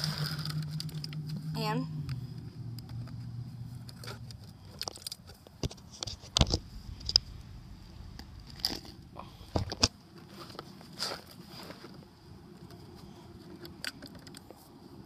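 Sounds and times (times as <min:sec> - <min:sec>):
crinkling: 0:00.0 - 0:15.0
handling clicks and knocks: 0:12.6 - 0:14.8.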